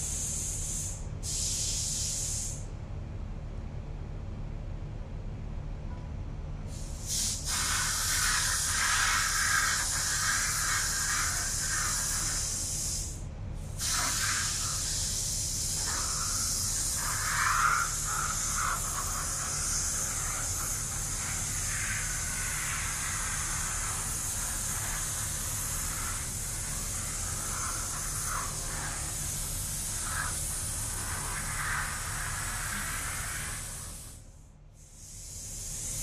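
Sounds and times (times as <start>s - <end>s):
paint spray gun hissing: 0.0s - 2.6s, 6.7s - 34.2s, 34.8s - 36.0s
steady low hum: 0.0s - 36.0s.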